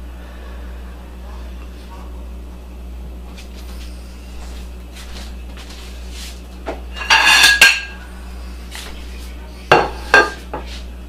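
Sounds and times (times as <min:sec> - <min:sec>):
dishes clattering: 0:06.7 - 0:08.0, 0:09.7 - 0:10.7
ceramic plate clinking on counter: 0:07.0 - 0:08.0, 0:09.7 - 0:10.4.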